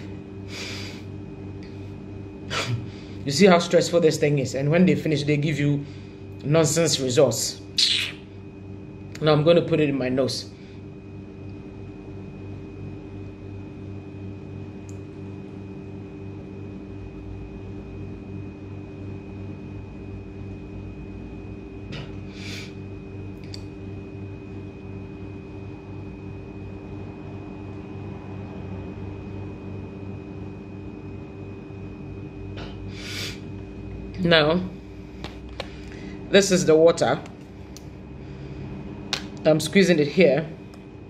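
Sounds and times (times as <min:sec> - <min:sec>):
ceiling fan humming: 0:00.0 - 0:41.0
breathy sniffs: 0:00.5 - 0:01.1, 0:22.3 - 0:22.8, 0:32.9 - 0:33.4.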